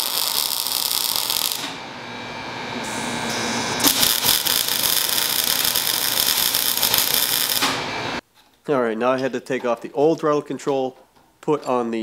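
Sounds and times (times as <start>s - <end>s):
welding arc crackling: 0.0s - 1.8s, 3.8s - 7.8s.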